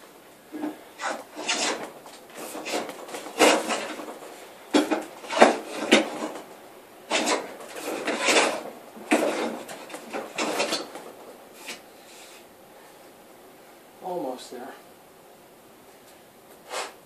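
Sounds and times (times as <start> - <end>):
plane shaving wood: 0.6 - 6.5, 7.1 - 11.8.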